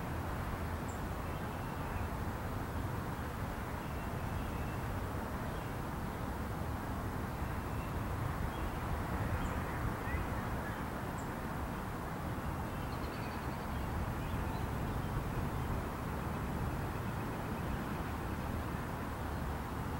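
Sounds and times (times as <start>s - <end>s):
wind rumble on microphone: 3.4s - 12.5s.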